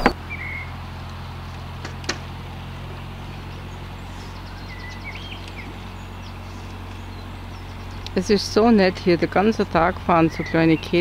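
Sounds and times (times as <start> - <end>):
diesel boat engine humming: 0.0 - 11.0
bird chirping: 3.3 - 8.2.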